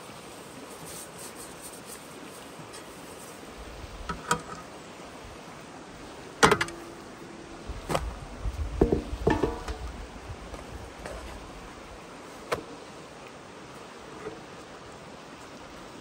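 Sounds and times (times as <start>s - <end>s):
metal trays knocking and clanking: 6.4s - 6.9s, 8.8s - 9.9s.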